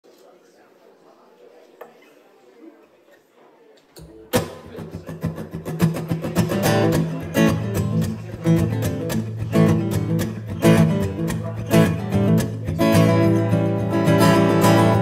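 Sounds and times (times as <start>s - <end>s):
acoustic guitar strumming: 4.3s - 15.0s.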